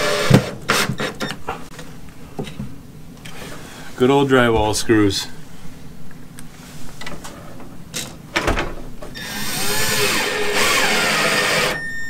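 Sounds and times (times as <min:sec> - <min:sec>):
cordless drill driving screw into wood: 0:09.2 - 0:11.8.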